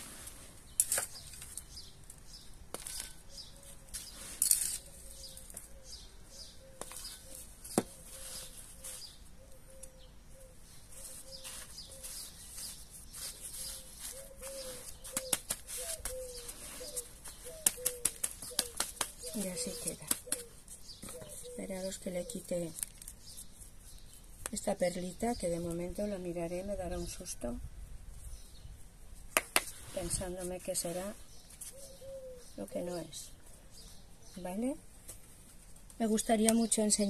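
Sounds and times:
hands scratching potting mix: 0.0s - 5.8s, 6.8s - 10.0s, 10.8s - 25.0s, 29.3s - 31.9s
sharp taps and clicks: 15.1s - 16.2s, 17.6s - 19.3s, 19.9s - 21.2s, 29.3s - 29.7s.

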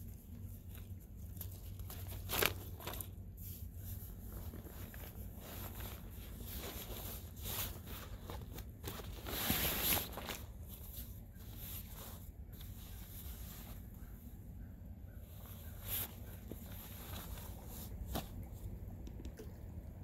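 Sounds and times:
steady low hum: 0.0s - 20.0s
fabric rustling and swishing: 2.0s - 14.3s, 15.2s - 18.5s.

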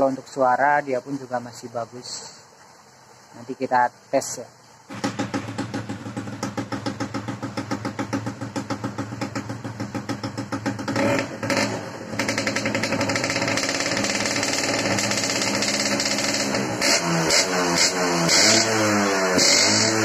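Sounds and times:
two-stroke engine running: 4.9s - 20.0s.

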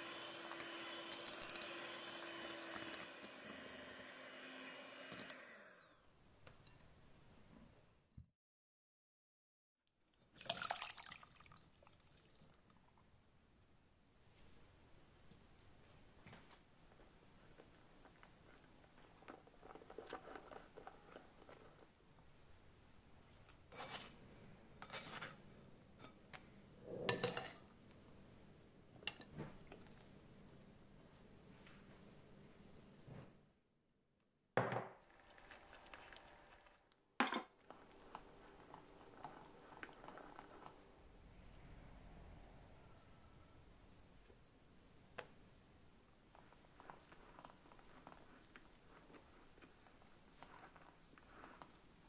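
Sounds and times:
spatula spreading cream: 17.6s - 22.1s, 23.3s - 24.2s, 24.8s - 25.4s, 37.6s - 41.0s, 46.3s - 52.0s.

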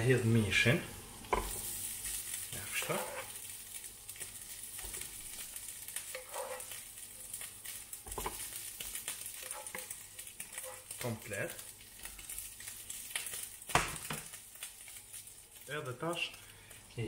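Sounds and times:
meat sizzling: 0.0s - 17.0s
wooden spoon scraping: 1.3s - 3.5s, 6.0s - 6.8s, 8.0s - 11.1s.

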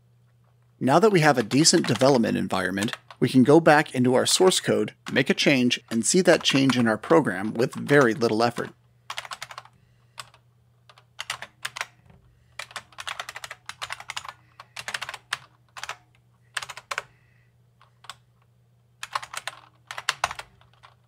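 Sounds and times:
typing on a computer keyboard: 1.2s - 2.2s, 7.6s - 12.0s, 12.6s - 17.1s, 17.8s - 18.3s, 19.0s - 21.0s.

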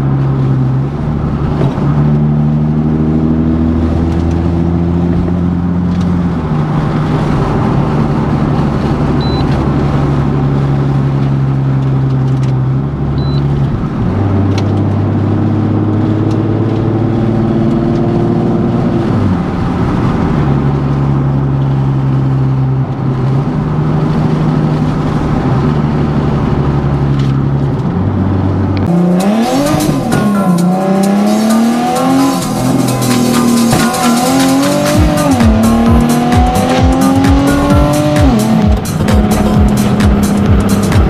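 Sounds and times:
engine revving: 0.0s - 12.0s, 23.1s - 41.0s
car engine droning at cruise: 0.0s - 41.0s.

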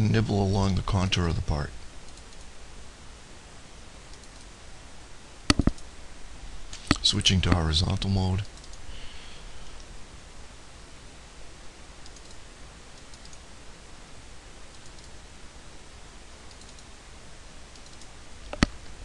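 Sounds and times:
low room hum: 0.0s - 19.0s
computer mouse double-clicks: 13.0s - 13.4s, 14.7s - 15.2s.

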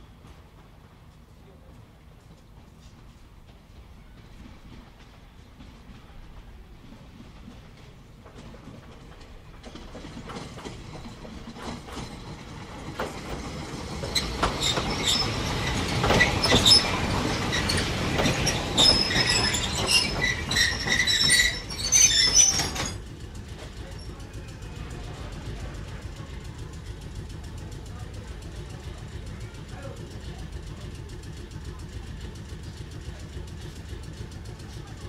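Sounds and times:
train wheels clattering over rail joints: 2.6s - 35.0s
train wheels squealing: 11.0s - 23.0s.

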